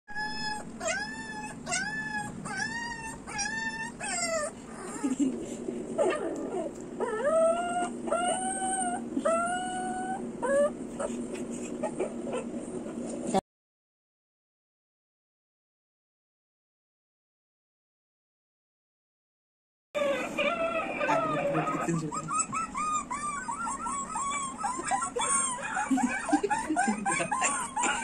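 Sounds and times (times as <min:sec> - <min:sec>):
dog whimpering: 0:00.1 - 0:13.4, 0:20.0 - 0:28.0.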